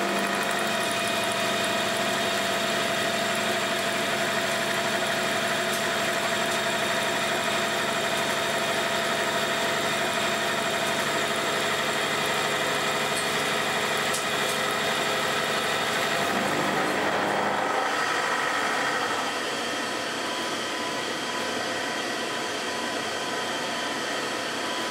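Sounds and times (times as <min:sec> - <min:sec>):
spindle drive running: 0:00.0 - 0:19.9
milling machine cutting metal: 0:00.0 - 0:22.2.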